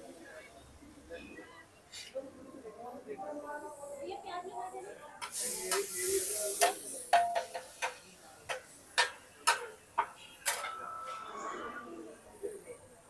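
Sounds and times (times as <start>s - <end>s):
brief hiss: 5.2s - 7.8s
spatula clinking on griddle: 5.3s - 10.9s.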